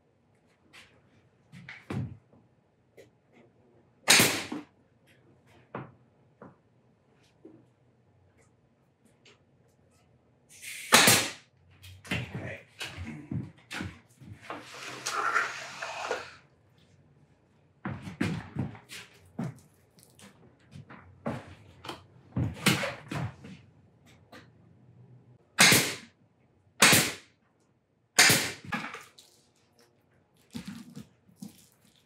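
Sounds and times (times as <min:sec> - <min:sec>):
staple gun shots: 0:04.1 - 0:04.5, 0:10.9 - 0:11.4, 0:25.6 - 0:26.1, 0:26.8 - 0:27.2, 0:28.2 - 0:28.7.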